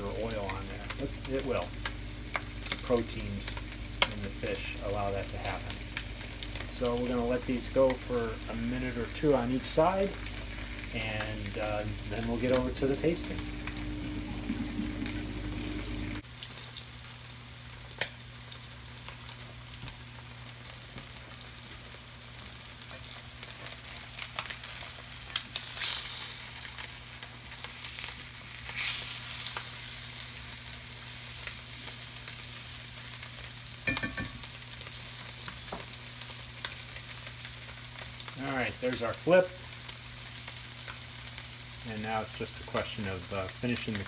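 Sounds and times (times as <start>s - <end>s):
low hum: 0.0s - 16.2s
fish frying in oil: 0.0s - 44.0s.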